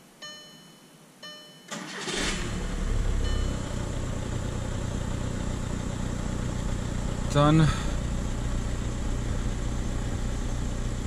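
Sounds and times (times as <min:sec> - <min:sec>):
dashboard chime: 0:00.2 - 0:01.8, 0:03.2 - 0:03.8
diesel engine starting and idling: 0:01.7 - 0:11.0.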